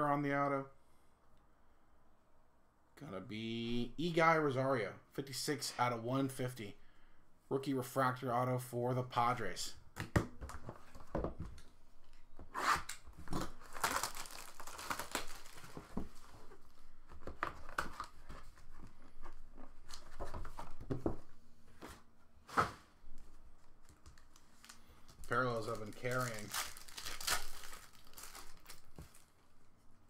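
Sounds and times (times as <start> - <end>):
plastic shrink-wrap tearing and crinkling: 13.2 - 15.8, 23.9 - 29.3.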